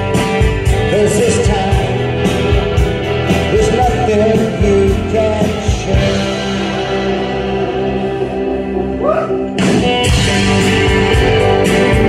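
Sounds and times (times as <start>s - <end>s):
drums: 0.0s - 12.0s
electric guitars: 0.0s - 12.0s
person singing: 0.8s - 2.2s, 3.5s - 6.7s.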